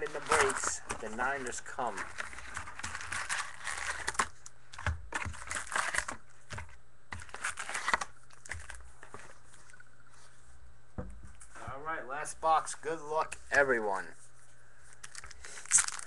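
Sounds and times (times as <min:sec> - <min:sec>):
card pack wrapper crinkling and tearing: 0:00.0 - 0:09.3, 0:14.9 - 0:16.0
cards being handled: 0:00.0 - 0:09.8.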